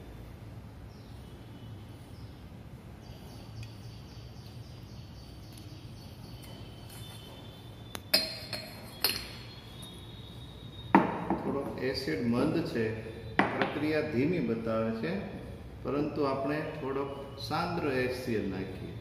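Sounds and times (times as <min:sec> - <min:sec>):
glass bottles clinking: 0:08.1 - 0:10.0.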